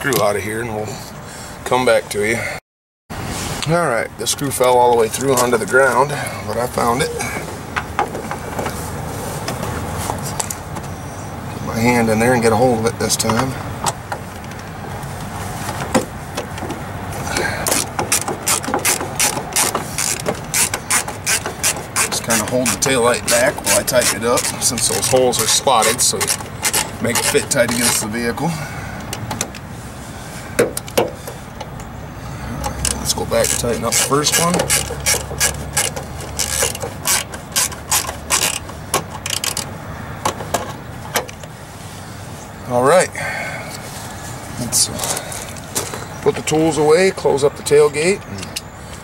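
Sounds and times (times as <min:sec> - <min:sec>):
ratcheting screwdriver clicking: 0:17.7 - 0:28.0, 0:32.8 - 0:39.7.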